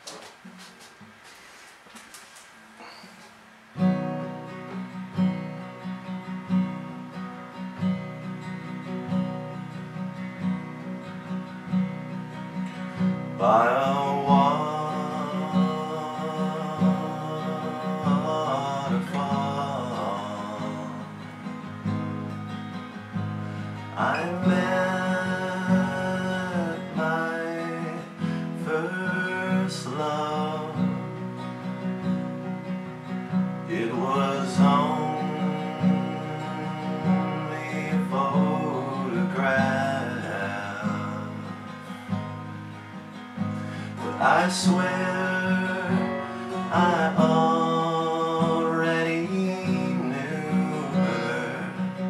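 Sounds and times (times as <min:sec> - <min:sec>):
strummed acoustic guitar: 0:00.0 - 0:52.0
man singing long note: 0:13.4 - 0:21.2.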